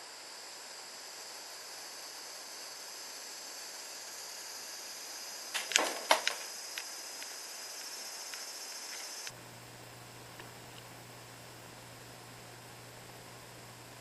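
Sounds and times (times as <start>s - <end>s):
steady high hiss: 0.0s - 14.0s.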